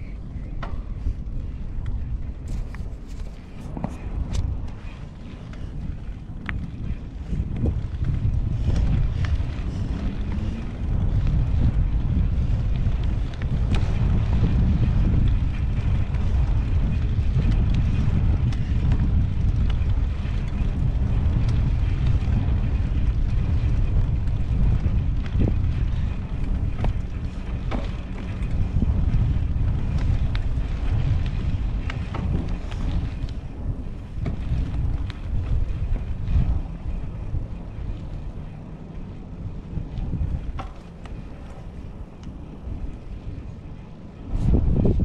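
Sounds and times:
wind buffeting microphone: 0.0s - 45.0s
small clicks and rattles: 0.4s - 44.2s.

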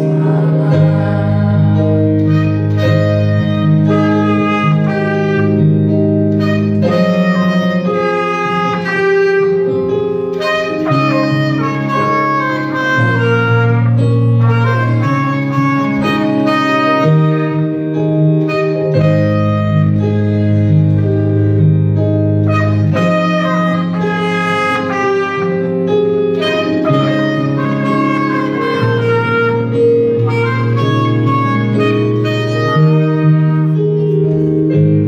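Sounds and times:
clarinet melody: 0.0s - 35.0s
electronic keyboard accompaniment: 0.0s - 35.0s
trumpet melody: 0.0s - 35.0s.

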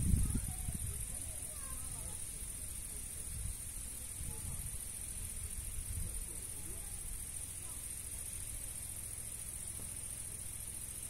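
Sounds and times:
wind rumbling on microphone: 0.0s - 6.9s
insects droning: 0.0s - 11.0s.

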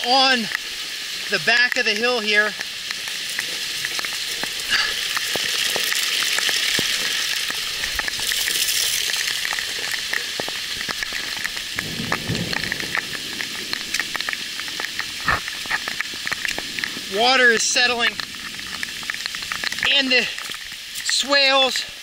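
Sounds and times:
heavy rain falling: 0.0s - 22.0s.

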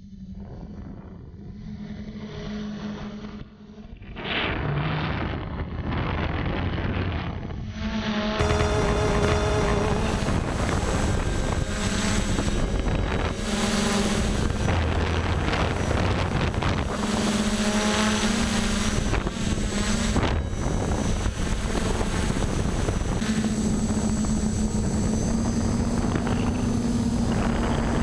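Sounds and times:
drone propellers humming: 1.6s - 28.0s
wind buffeting microphone: 4.9s - 7.7s, 8.4s - 28.0s.

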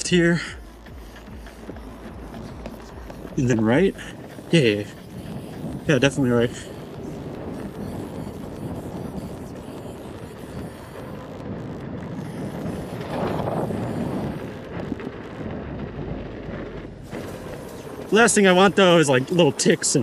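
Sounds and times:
tyre noise on dirt: 0.0s - 9.8s
wind buffeting microphone: 0.0s - 20.0s.

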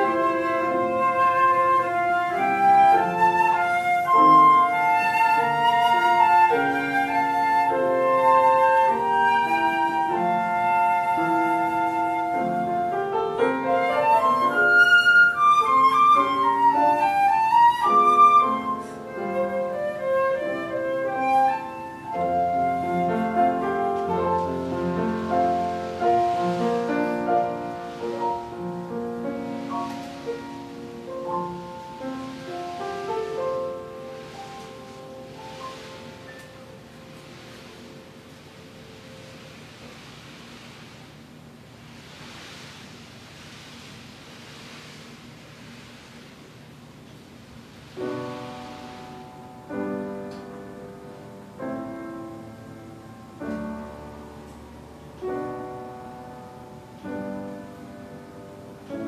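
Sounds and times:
flutes playing melody: 0.0s - 37.1s
piano accompaniment: 0.0s - 59.0s
soft swishing: 0.0s - 59.0s.

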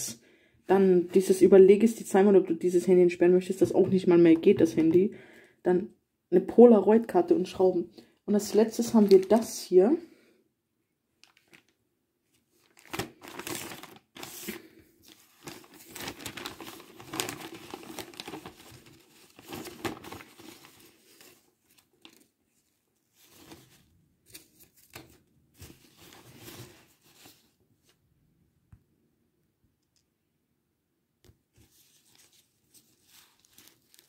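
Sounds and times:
paper tissue crinkling: 8.3s - 9.7s, 11.2s - 28.0s, 31.6s - 34.0s.

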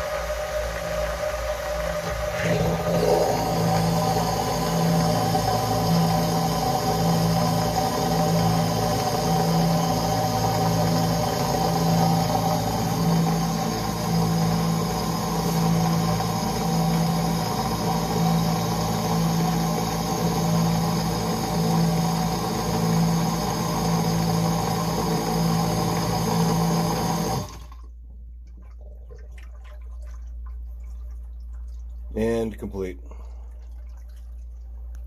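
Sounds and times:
sump pump humming: 0.0s - 35.0s
faint dripping: 28.1s - 35.0s.

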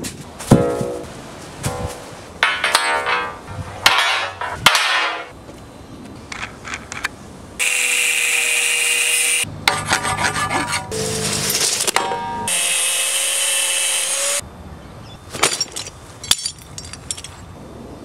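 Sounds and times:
steel pipes clanking: 0.5s - 5.3s, 10.8s - 12.5s
angle grinder cutting steel: 7.6s - 14.4s.

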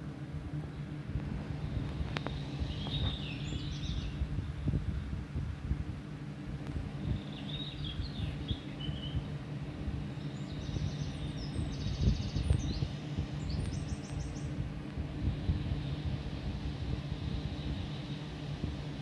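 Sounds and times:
steady low rumble: 0.0s - 19.0s
birds chirping and trilling: 0.6s - 4.8s, 6.9s - 14.6s.

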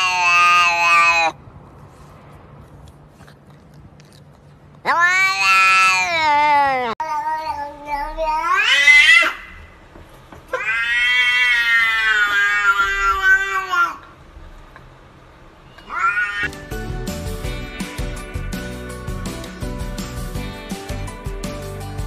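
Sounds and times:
cat meowing: 0.0s - 1.4s, 4.8s - 9.6s, 10.5s - 14.1s, 15.7s - 16.5s.

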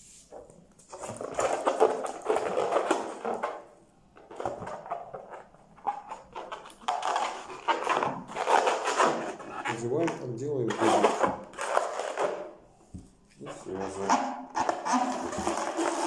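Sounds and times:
balloon rubbing and squeaking: 5.9s - 12.3s, 13.4s - 16.0s.

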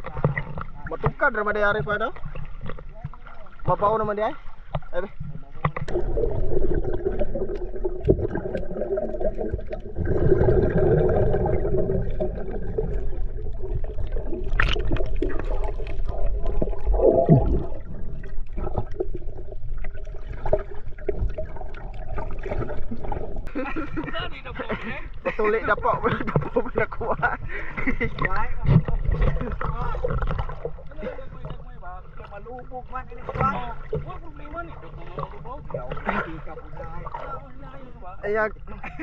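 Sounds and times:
underwater rumbling and gurgling: 0.0s - 39.0s
small underwater clicks: 4.6s - 10.3s, 11.3s - 23.5s.

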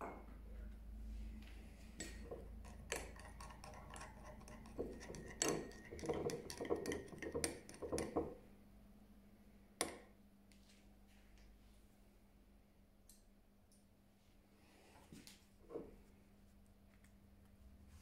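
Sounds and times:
spoon clinking in glass bowl: 2.6s - 8.2s.

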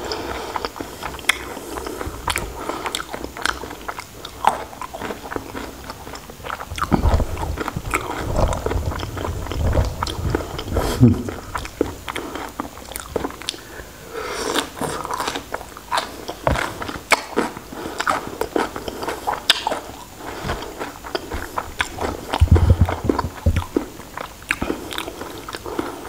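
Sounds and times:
wet chewing and lip smacks: 0.5s - 13.7s, 14.5s - 25.9s
low thumps: 6.8s - 12.0s, 21.3s - 23.9s.

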